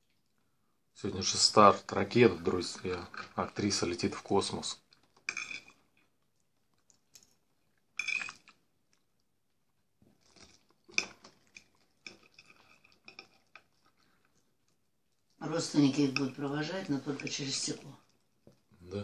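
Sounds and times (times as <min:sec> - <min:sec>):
chewing and mouth sounds: 0:04.8 - 0:15.4.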